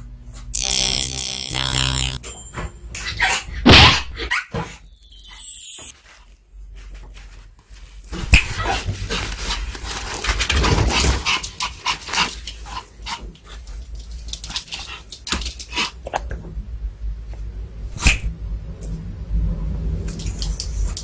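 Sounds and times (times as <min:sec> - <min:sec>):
paper towel rustling: 0:06.0 - 0:12.6.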